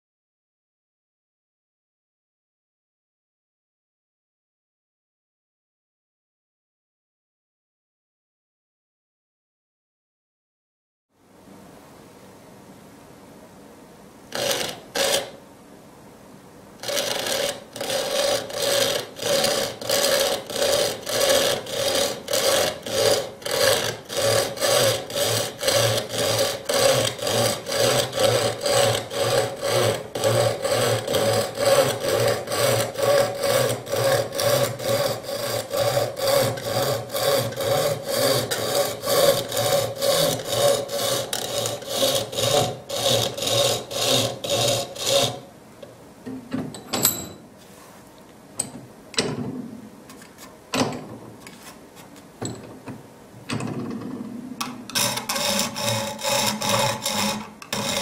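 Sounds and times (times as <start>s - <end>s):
coping saw cutting board: 14.3s - 15.4s, 16.8s - 45.5s, 54.9s - 58.0s.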